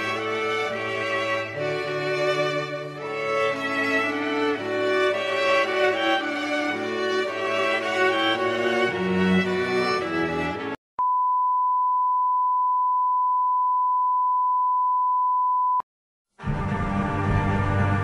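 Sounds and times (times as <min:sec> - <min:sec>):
string music: 0:00.0 - 0:10.8, 0:16.4 - 0:18.0
ominous music: 0:16.4 - 0:18.0.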